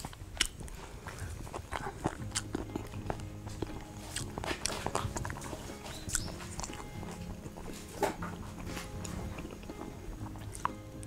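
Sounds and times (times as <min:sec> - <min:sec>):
person chewing and biting food: 0:00.0 - 0:11.0.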